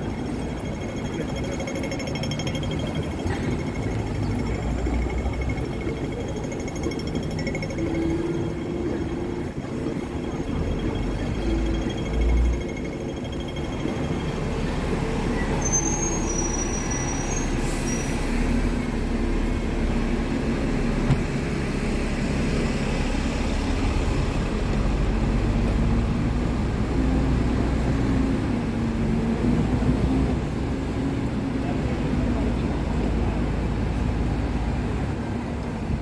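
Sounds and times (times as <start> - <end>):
high wheel squeals: 0.0 - 19.0, 34.2 - 35.7
train rumbling: 0.0 - 36.0.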